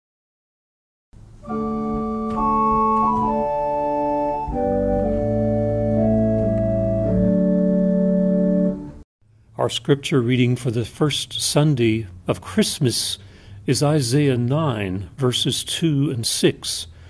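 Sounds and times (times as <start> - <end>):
organ playing held chords: 1.2 - 9.0.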